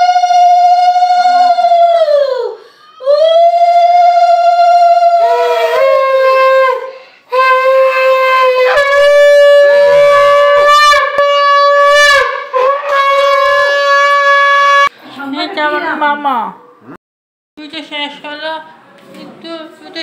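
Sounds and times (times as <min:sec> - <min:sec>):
conch shell blasts: 0:07.3 - 0:14.9.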